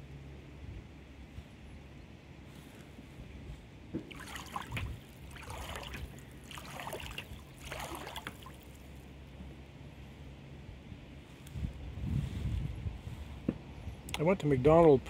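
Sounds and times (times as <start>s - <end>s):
paddle splashing in water: 4.0s - 8.9s.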